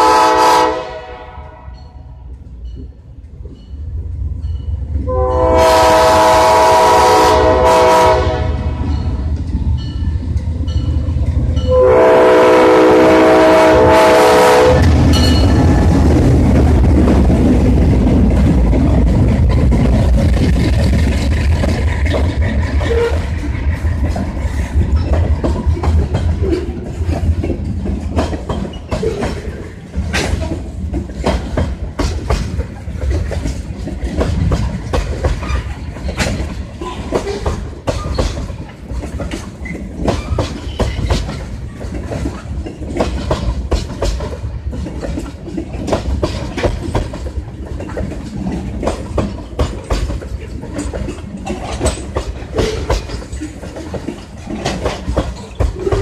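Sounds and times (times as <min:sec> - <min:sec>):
deep train rumble: 0:00.0 - 0:56.0
train wheels clacking on rail joints: 0:01.7 - 0:56.0.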